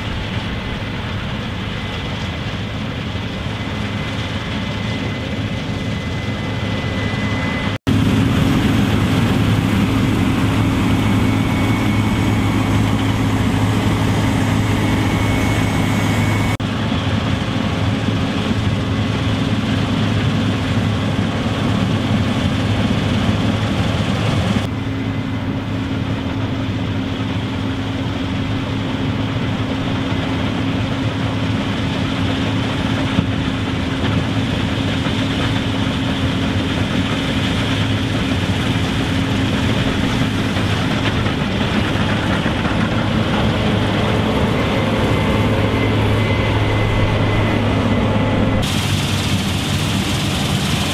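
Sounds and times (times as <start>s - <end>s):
diesel engine drone: 0.0s - 50.9s
threshing machinery humming: 3.4s - 16.6s, 35.7s - 50.9s.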